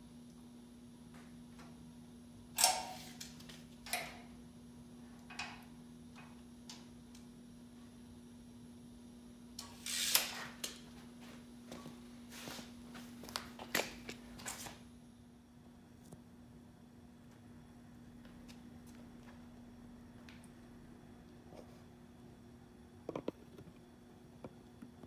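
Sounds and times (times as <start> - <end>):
tape measure retracting with snap: 2.6 - 4.1, 9.6 - 10.8.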